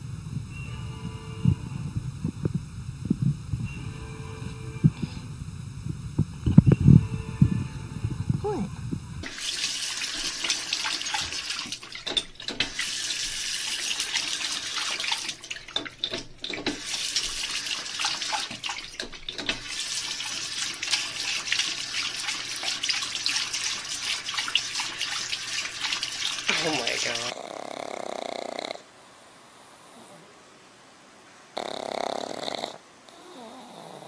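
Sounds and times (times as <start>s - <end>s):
tap water splashing into basin: 9.2s - 27.3s.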